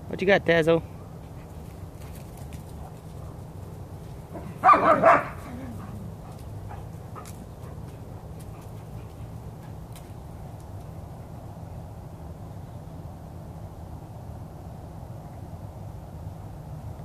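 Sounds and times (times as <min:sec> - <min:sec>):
dog barking: 0:04.4 - 0:05.9.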